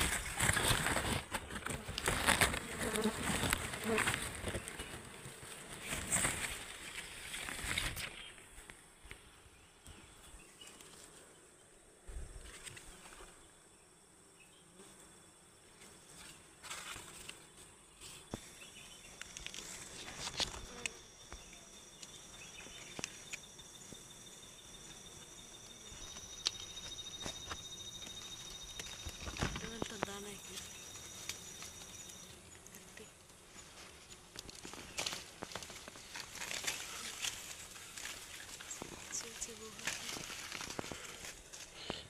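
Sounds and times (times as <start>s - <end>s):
honeybees buzzing: 0.0s - 8.3s, 12.8s - 42.0s
high-pitched insect trill: 18.0s - 41.9s.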